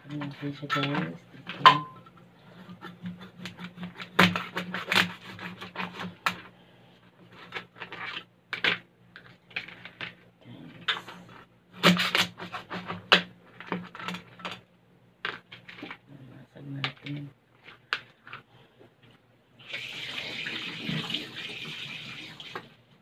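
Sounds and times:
shell cracking and scraping: 2.1s - 6.5s, 7.2s - 14.6s, 15.2s - 16.0s.

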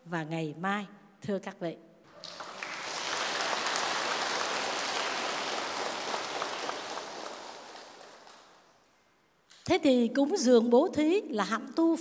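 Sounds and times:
audience applauding: 2.1s - 8.8s.

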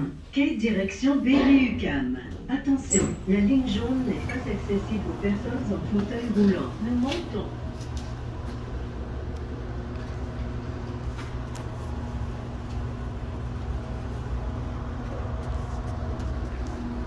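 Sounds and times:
elevator low hum: 0.0s - 17.0s.

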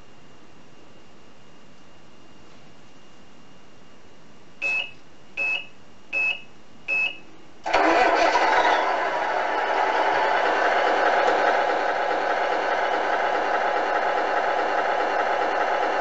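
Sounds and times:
short beeps: 4.6s - 7.2s
simulated truck engine running: 7.6s - 16.0s.

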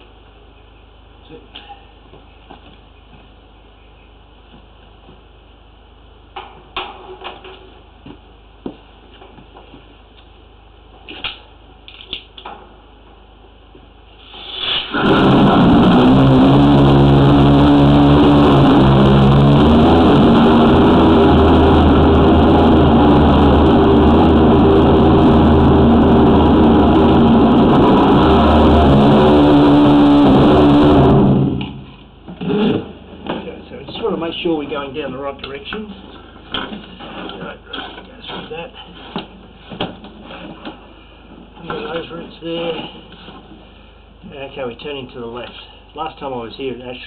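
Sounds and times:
broad water hiss: 14.2s - 15.0s.

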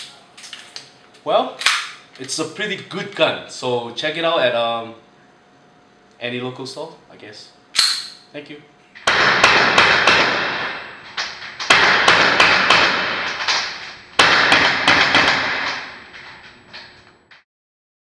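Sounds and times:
airsoft pistol firing rapidly: 9.1s - 10.8s, 11.6s - 15.9s.

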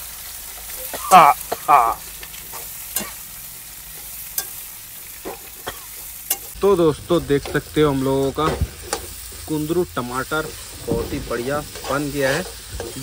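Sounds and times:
vegetables sizzling in hot oil: 0.0s - 13.0s
metal ladle scraping pan: 7.2s - 13.0s.

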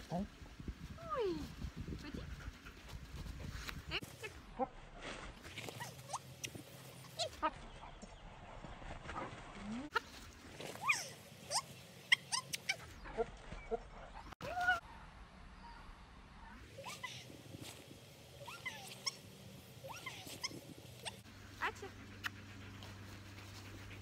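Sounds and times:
dog whining and yipping: 18.4s - 19.2s, 19.8s - 21.2s.

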